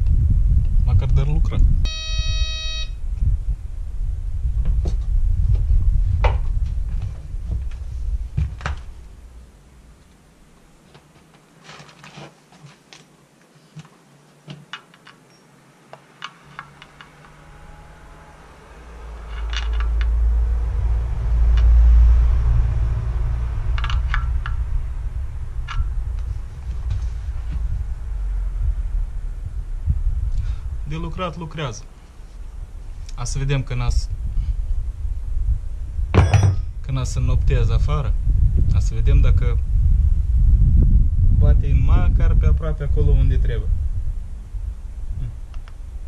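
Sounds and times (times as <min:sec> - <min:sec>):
low uneven rumble: 0:02.9 - 0:11.2, 0:16.2 - 0:46.0
tool clinking on metal mount: 0:36.2 - 0:36.7.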